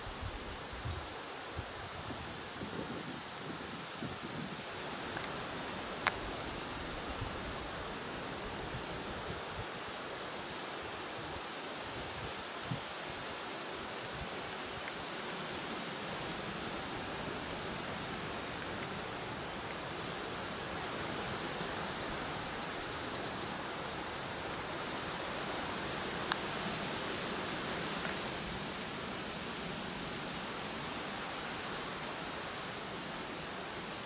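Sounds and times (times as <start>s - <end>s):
outdoor ambience hiss: 0.0s - 34.0s.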